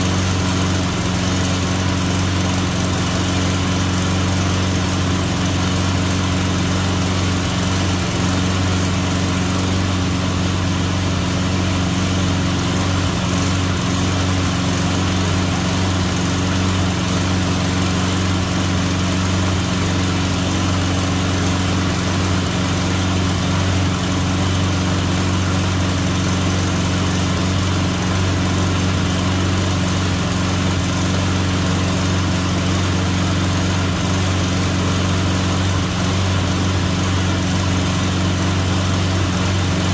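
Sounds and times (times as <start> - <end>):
push mower engine running: 0.0 - 39.9.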